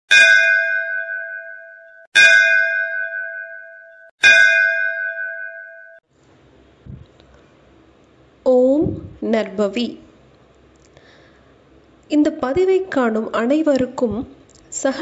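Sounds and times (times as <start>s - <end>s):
bell ringing: 0.1s - 6.0s.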